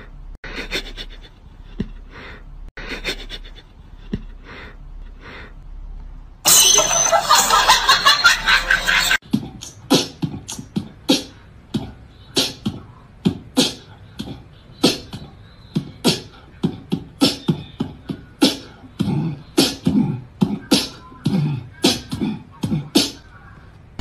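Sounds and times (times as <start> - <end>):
beatbox mouth percussion: 9.2 - 23.2.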